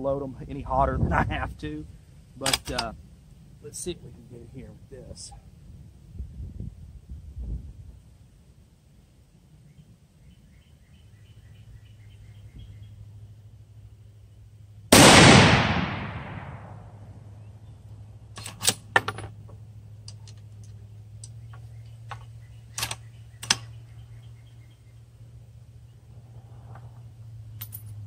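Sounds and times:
rifle bolt metallic clicks: 2.4 - 3.0, 18.4 - 19.3, 20.0 - 23.7
rifle shot with echo: 14.9 - 17.1.

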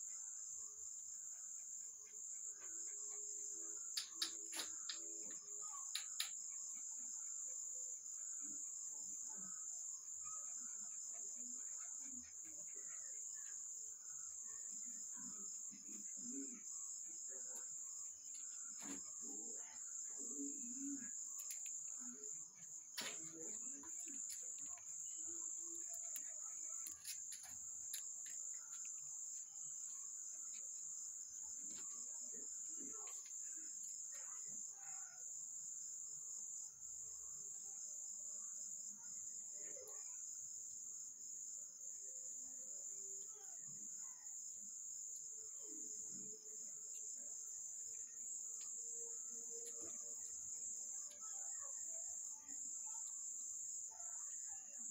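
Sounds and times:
crickets chirring: 0.0 - 54.9.

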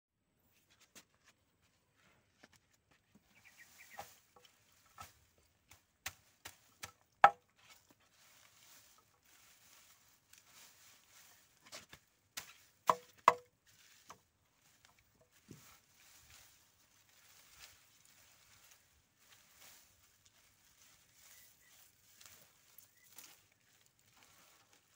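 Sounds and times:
stalks rustling: 0.6 - 24.9
machete chopping on wood: 6.1 - 7.4, 12.4 - 13.5.

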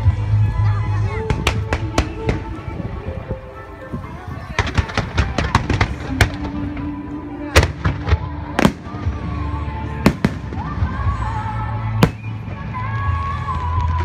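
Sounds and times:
fireworks bangs: 4.5 - 14.0.

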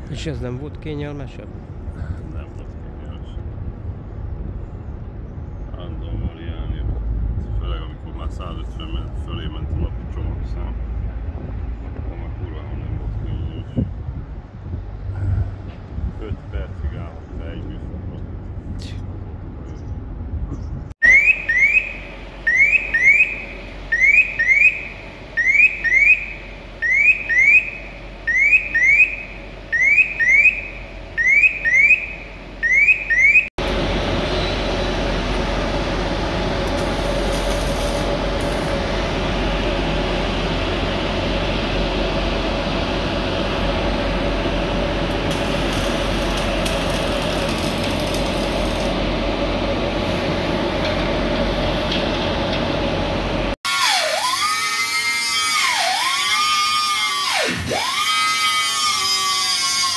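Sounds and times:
machinery drone: 0.0 - 19.8, 21.0 - 59.9
electronic alarm chirps: 21.0 - 33.5.

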